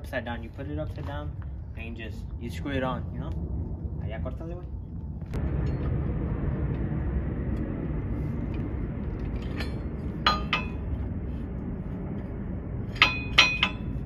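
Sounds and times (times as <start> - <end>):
steady low rumble: 0.0 - 14.0
metal hardware clinking: 12.9 - 14.0.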